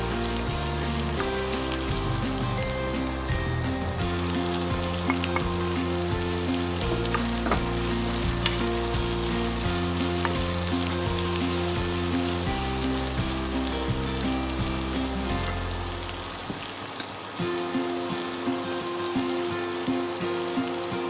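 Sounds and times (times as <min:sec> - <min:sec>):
background music with chords: 0:00.0 - 0:16.3
food sizzling in frying pan: 0:00.0 - 0:21.0.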